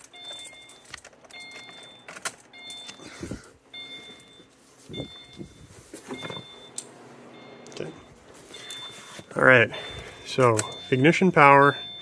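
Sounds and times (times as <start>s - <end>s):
keys jingling: 0.0s - 6.8s, 8.3s - 9.2s
car warning chime beeping: 0.0s - 12.0s.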